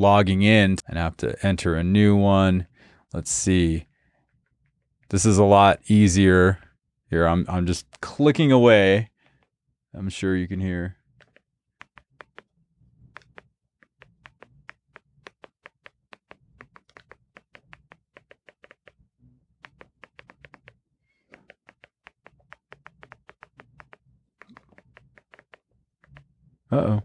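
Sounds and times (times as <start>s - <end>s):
remote control buttons clicking: 11.2s - 12.5s, 13.2s - 18.9s, 19.6s - 20.7s, 21.3s - 26.2s.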